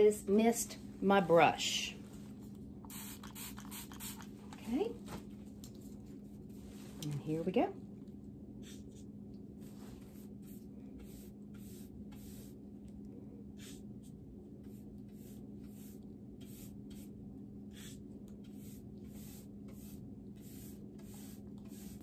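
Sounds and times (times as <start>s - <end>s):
steady low hum: 0.0s - 22.0s
paintbrush bristle swishes: 9.6s - 12.6s, 14.7s - 17.1s.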